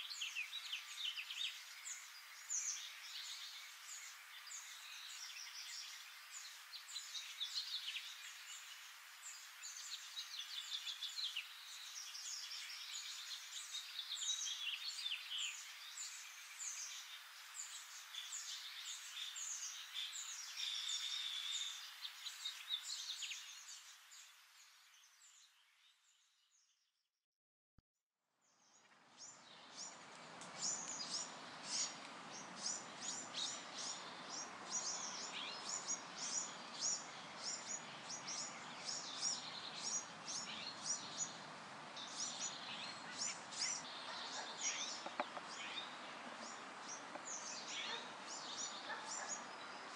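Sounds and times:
steady ambient hiss: 0.0s - 25.1s
birds chirping: 29.2s - 49.9s.

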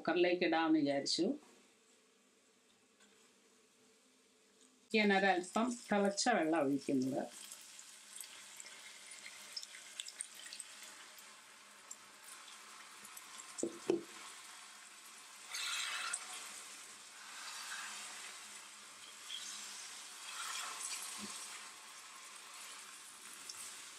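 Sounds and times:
food sizzling and crackling: 1.9s - 23.9s
water poured into hot pan: 5.4s - 23.9s
spatula stirring: 15.4s - 21.6s.

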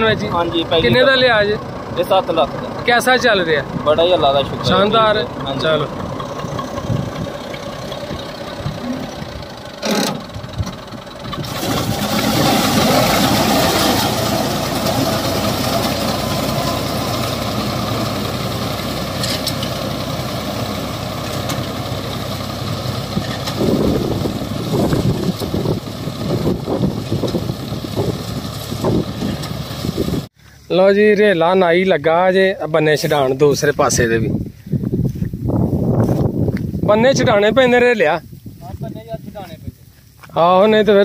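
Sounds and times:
tractor engine under load: 0.0s - 30.3s.

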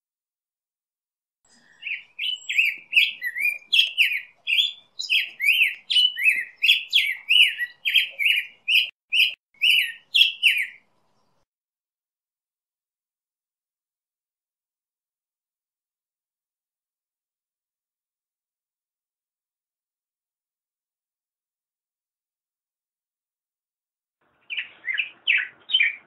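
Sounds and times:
bird singing warbled song: 1.5s - 11.5s, 24.3s - 26.0s.

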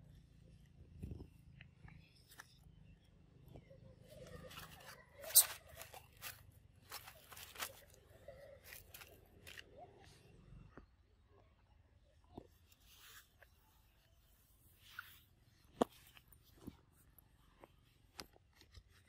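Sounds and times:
dry leaves crackling: 4.2s - 9.6s.

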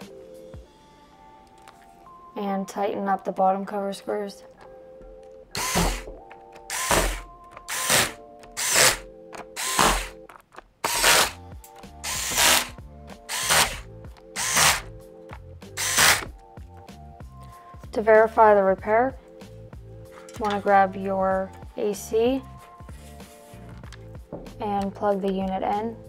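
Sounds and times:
electric screwdriver bursts: 5.6s - 10.2s, 10.8s - 11.4s, 12.0s - 14.9s, 15.8s - 16.3s.

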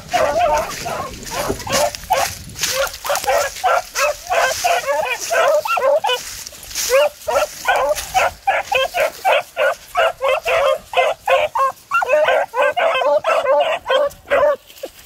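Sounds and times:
dogs baying: 0.0s - 15.0s.

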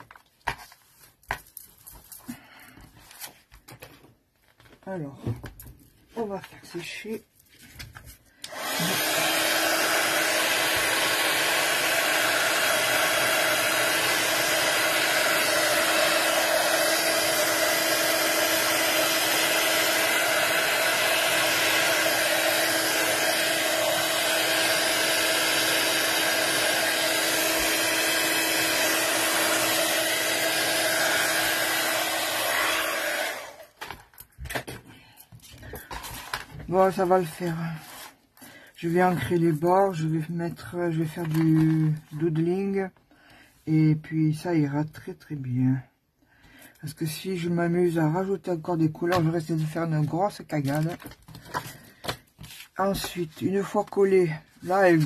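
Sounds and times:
hot-air dryer blowing: 8.4s - 34.0s.

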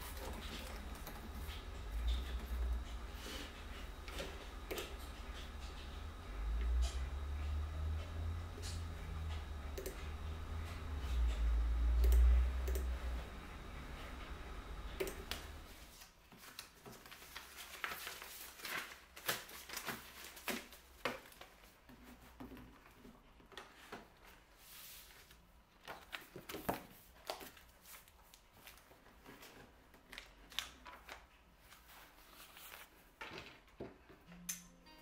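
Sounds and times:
paper rustling: 15.8s - 23.0s, 23.6s - 33.6s.

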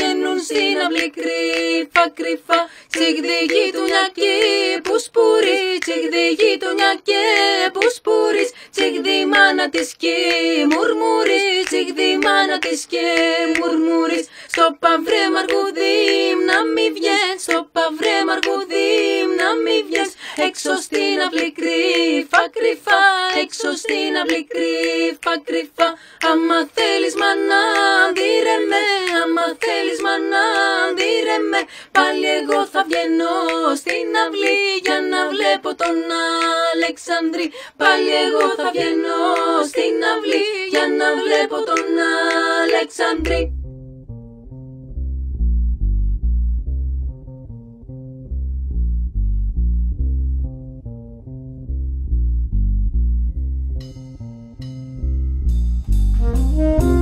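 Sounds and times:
women singing a cappella: 0.0s - 43.5s.

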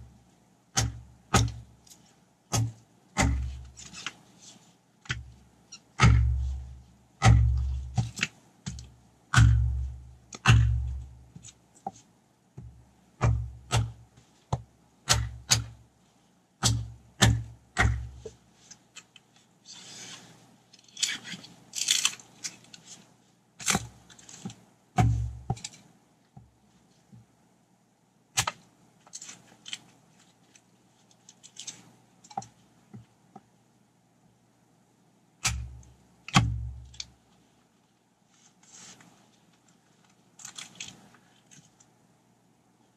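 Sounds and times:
axe chopping firewood: 0.8s - 1.6s, 2.5s - 3.9s, 6.0s - 6.6s, 7.2s - 11.1s, 12.6s - 15.8s, 16.6s - 18.4s, 25.0s - 25.6s, 35.4s - 36.8s
crackly rustling: 18.2s - 24.7s, 28.8s - 33.2s, 36.9s - 42.1s.

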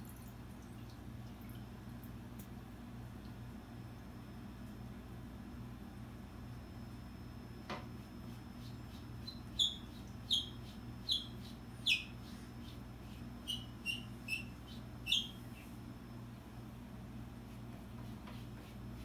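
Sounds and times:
steady low hum: 0.0s - 19.0s
small bird chirping: 8.6s - 15.8s.

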